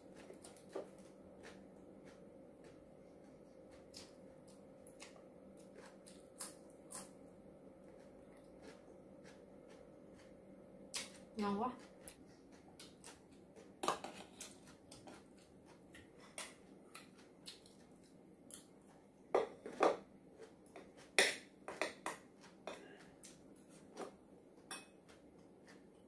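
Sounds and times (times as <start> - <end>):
metal spoon clinking on ceramic bowls: 24.7 - 25.0.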